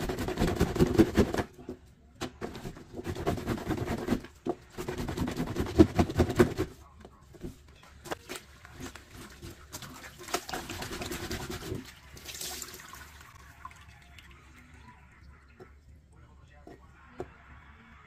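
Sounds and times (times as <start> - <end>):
rag scrubbing on washboard: 0.0 - 1.5, 2.4 - 6.8, 8.7 - 12.0.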